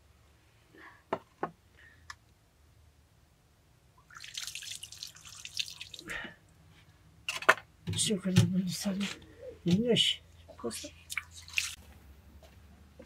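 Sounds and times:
water pouring and splashing: 4.0s - 6.2s, 11.1s - 11.8s.

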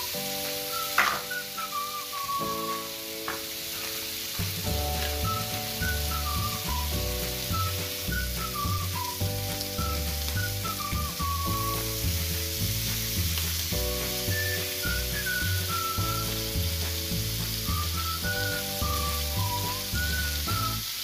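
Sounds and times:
background music: 0.0s - 21.0s
seafood sizzling in a frying pan: 0.0s - 21.0s.

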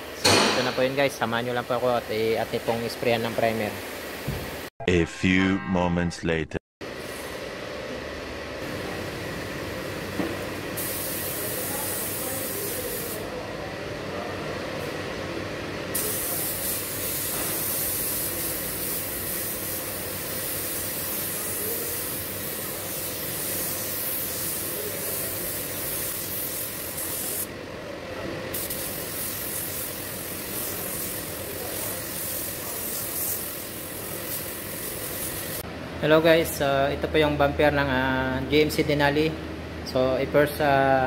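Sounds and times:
air spray gun hissing: 10.8s - 13.2s, 15.9s - 27.5s, 28.5s - 35.6s.

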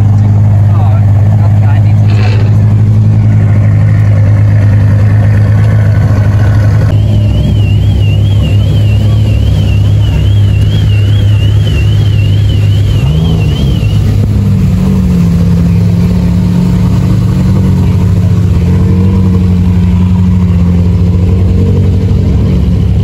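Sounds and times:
car engine idling: 0.0s - 23.0s
warbling electronic alarm tone: 6.9s - 14.2s.

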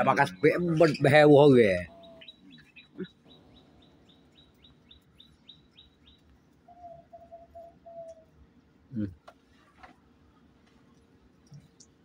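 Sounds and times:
bird chirping: 0.0s - 8.7s
lower bird call: 1.7s - 9.3s.

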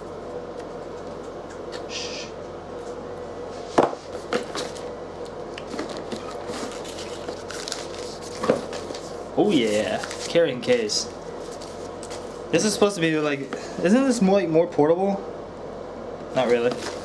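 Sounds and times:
faint steady hum: 0.0s - 17.0s
cardboard rustling: 5.7s - 12.3s.

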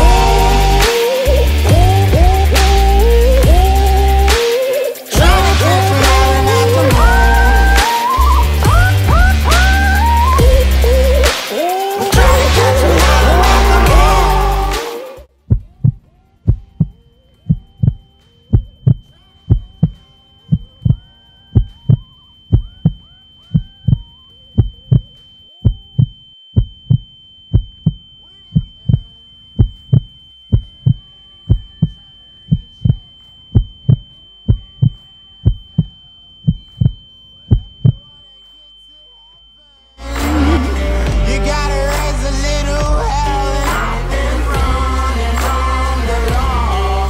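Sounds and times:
steady high tone: 0.0s - 15.3s, 16.4s - 47.0s
heartbeat thumps: 1.4s - 4.3s, 5.2s - 11.2s, 12.2s - 14.6s, 15.4s - 28.0s, 28.6s - 38.1s.

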